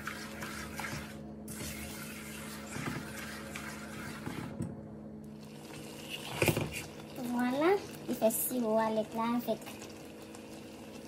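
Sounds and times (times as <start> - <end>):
spatula scraping and stirring in pot: 0.0 - 4.6
steady low hum: 0.0 - 11.0.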